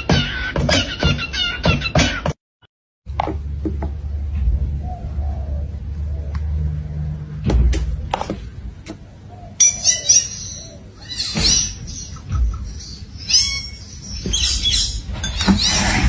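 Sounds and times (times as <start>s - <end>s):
parakeet chirping and squawking: 9.2s - 16.0s.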